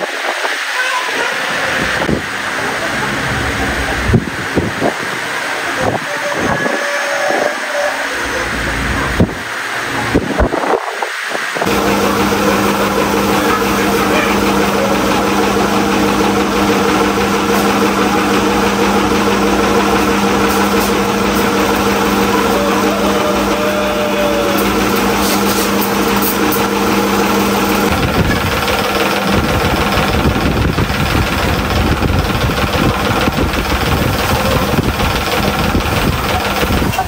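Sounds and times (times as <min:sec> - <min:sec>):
motor humming: 0:11.6 - 0:37.0.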